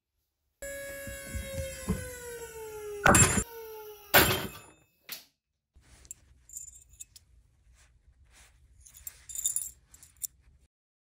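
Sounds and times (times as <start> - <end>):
metallic carabiner clinks: 6.5 - 7.2, 8.8 - 10.4.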